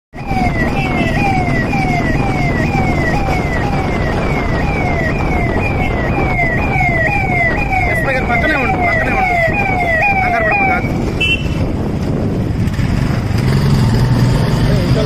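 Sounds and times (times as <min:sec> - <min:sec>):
police siren: 0:00.2 - 0:11.4.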